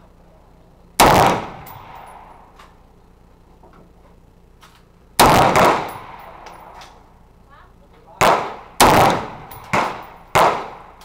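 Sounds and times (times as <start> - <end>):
rifle shots with echo: 1.0 - 2.8, 5.2 - 7.0, 8.2 - 11.0.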